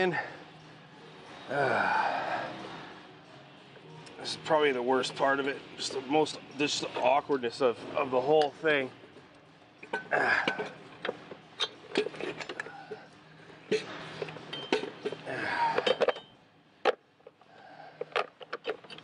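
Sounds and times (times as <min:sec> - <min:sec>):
metal clinks and knocks: 0:15.8 - 0:17.0.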